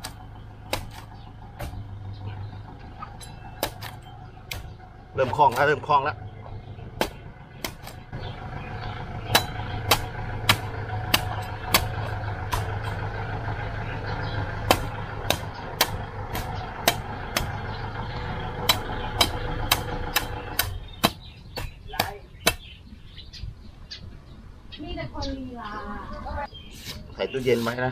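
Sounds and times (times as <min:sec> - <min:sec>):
cleaver chopping coconut husk: 0:00.0 - 0:02.2, 0:02.9 - 0:06.0, 0:07.0 - 0:08.1, 0:09.1 - 0:13.1, 0:14.6 - 0:22.7
engine drone: 0:00.0 - 0:22.8.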